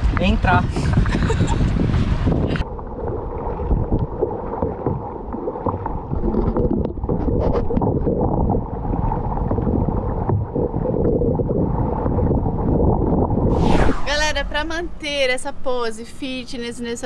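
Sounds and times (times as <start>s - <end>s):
water splashing around kayak: 0.0s - 13.5s
wind rumble on microphone: 0.0s - 17.0s.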